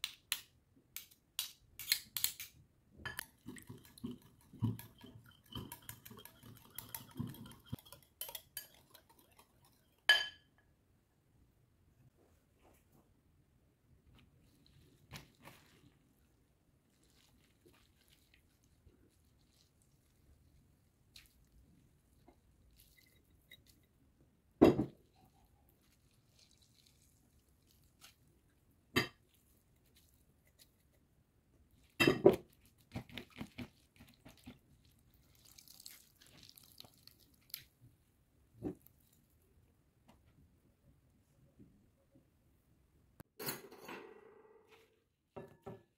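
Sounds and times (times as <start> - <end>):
wet squelching of squeezed vegetables: 16.8 - 24.0, 25.0 - 31.1, 31.7 - 38.0
juice dripping into a bowl: 25.8 - 28.2, 34.0 - 37.8
wet crunching of cucumber in hands: 32.4 - 37.8.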